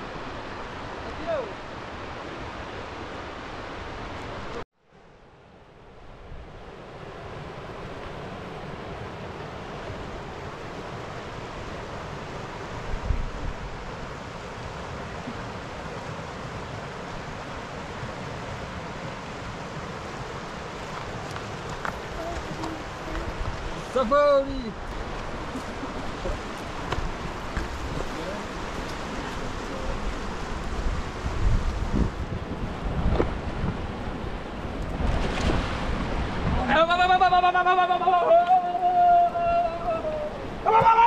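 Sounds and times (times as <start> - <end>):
river rushing: 0.0 - 41.0
wind rumble on microphone: 5.9 - 37.3.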